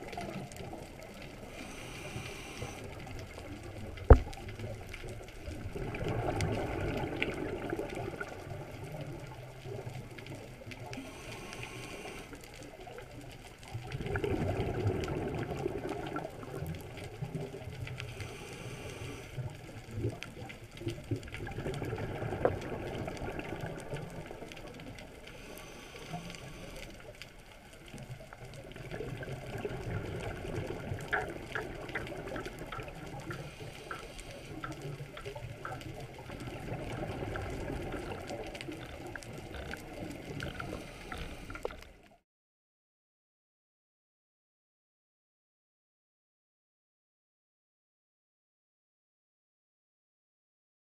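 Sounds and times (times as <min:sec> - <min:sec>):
underwater exhaled bubbles: 0:00.0 - 0:42.2
regulator inhalation hiss: 0:01.6 - 0:02.9, 0:11.0 - 0:12.4, 0:18.2 - 0:19.3, 0:25.4 - 0:27.0.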